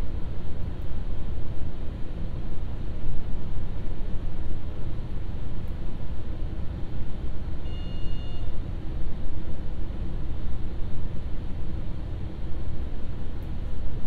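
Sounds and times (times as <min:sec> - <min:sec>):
railcar engine drone: 0:00.0 - 0:14.0
brief high tone: 0:07.7 - 0:08.6.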